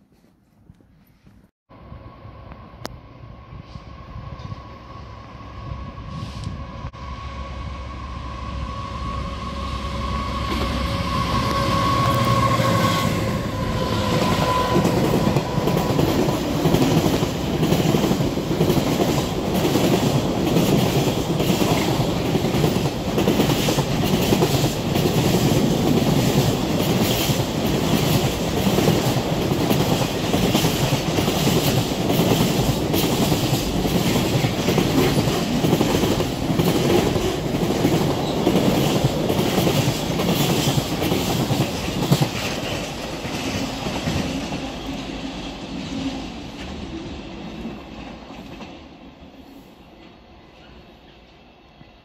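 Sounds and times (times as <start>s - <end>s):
locomotive whine: 1.7s - 20.7s.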